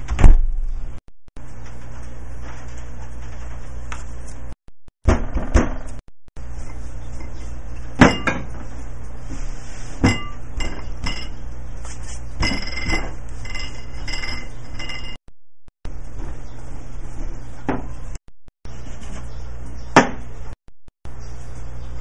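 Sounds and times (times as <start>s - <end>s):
steady low hum: 5.7s - 15.2s
utensils and dishes clinking: 10.0s - 11.5s, 12.4s - 15.2s.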